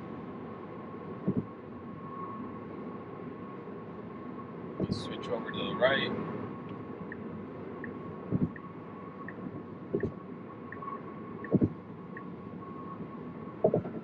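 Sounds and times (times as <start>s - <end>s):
tyre and road hum: 0.0s - 14.0s
turn signal ticking: 1.2s - 1.6s, 6.6s - 12.9s, 13.6s - 14.0s.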